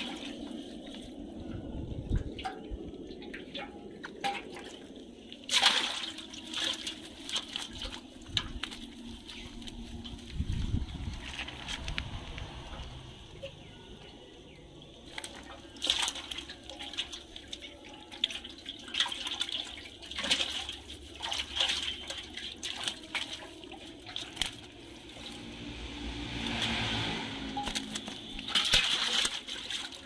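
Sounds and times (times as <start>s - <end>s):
fish slapping on concrete: 5.5s - 9.8s, 15.1s - 17.6s, 18.2s - 25.4s, 26.4s - 27.0s, 27.6s - 30.0s
wet net rustling: 18.3s - 30.0s.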